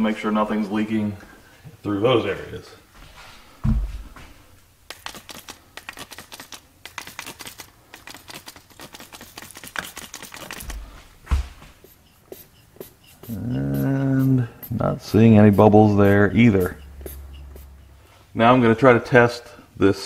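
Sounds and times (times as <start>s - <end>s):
heavy thump: 3.6s - 4.1s
spray bottle spritzes: 4.9s - 10.8s, 11.8s - 17.8s.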